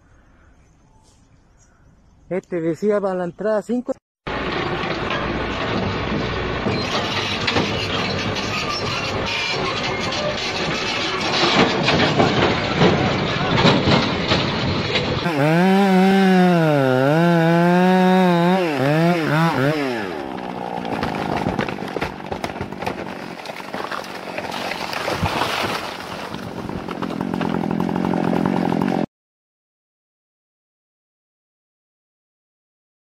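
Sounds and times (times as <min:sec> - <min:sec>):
chainsaw cutting a tree: 0:15.2 - 0:29.1.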